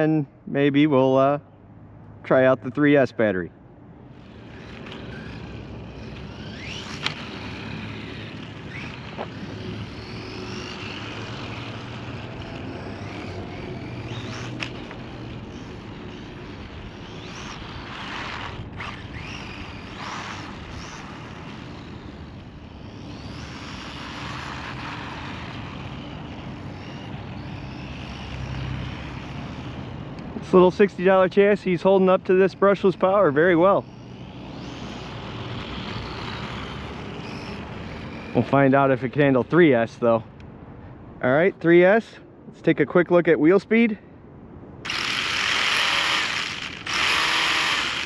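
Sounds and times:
tyres on asphalt: 0.0 - 48.0
electric motor whine: 4.1 - 30.3, 32.4 - 38.9, 44.8 - 48.0.

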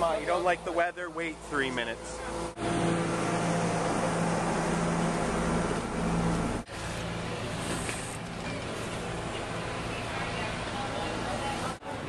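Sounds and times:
outdoor background noise: 0.0 - 12.0
steady mechanical hum: 0.0 - 12.0.

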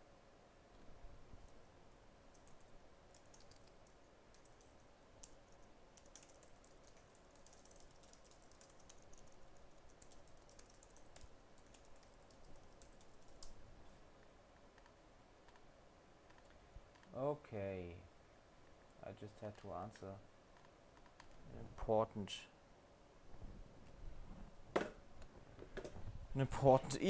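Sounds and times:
keyboard typing: 2.3 - 13.6.

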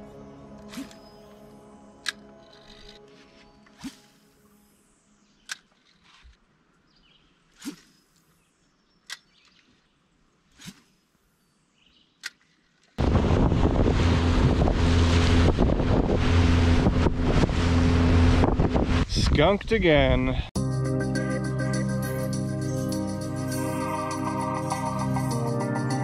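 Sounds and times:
boat engine hum: 13.0 - 19.3
wind buffeting microphone: 13.0 - 20.5.

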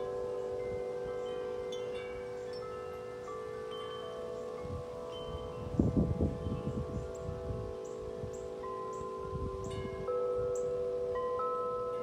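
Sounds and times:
tubular wind chimes ringing: 0.0 - 12.0
wind rumbling on microphone: 4.0 - 11.4.

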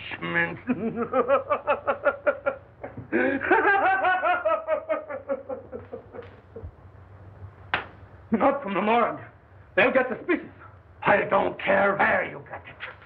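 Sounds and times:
old man cackling laughter: 0.7 - 6.7.

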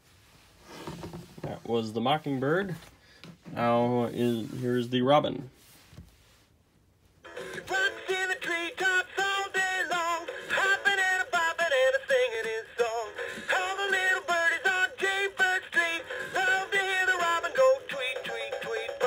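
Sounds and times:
toy bird singing synthetic song: 7.9 - 19.0.

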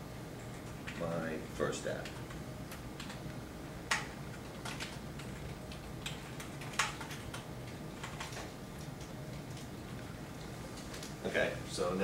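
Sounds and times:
keyboard keys clicking: 3.9 - 10.0.

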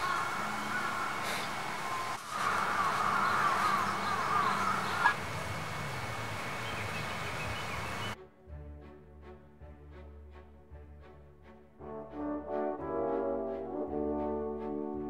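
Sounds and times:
birds chirping: 0.0 - 8.2
outdoor background noise: 0.0 - 8.2.

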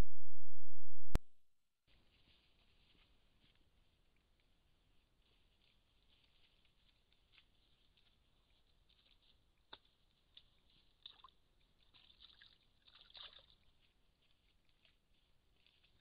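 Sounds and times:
faint ticks and rustles: 1.9 - 16.0.

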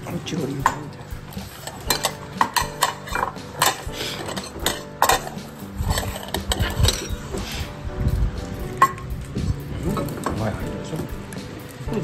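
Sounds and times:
bowls and cutlery clinking: 0.6 - 7.7, 8.8 - 9.1.

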